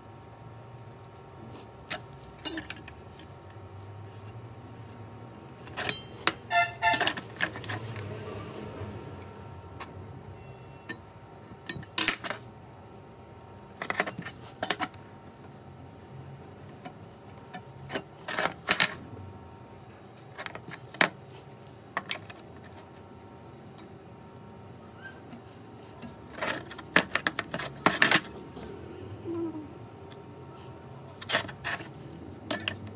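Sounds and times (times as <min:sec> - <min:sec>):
metal tools clinking on wood: 0:01.9 - 0:03.0, 0:05.6 - 0:07.9, 0:11.6 - 0:12.4, 0:26.0 - 0:28.4, 0:31.2 - 0:32.9.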